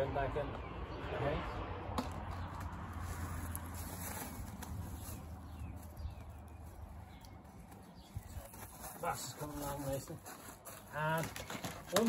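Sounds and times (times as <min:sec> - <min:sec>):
hands rustling in compost: 0:02.8 - 0:11.5.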